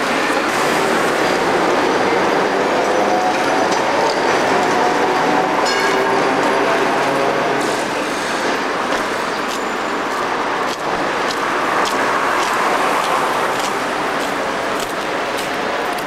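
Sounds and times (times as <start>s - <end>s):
street traffic rumble and hiss: 0.0s - 16.0s.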